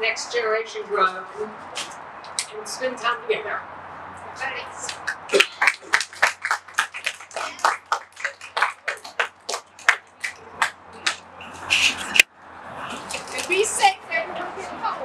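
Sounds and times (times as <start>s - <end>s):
people clapping: 4.8s - 12.3s.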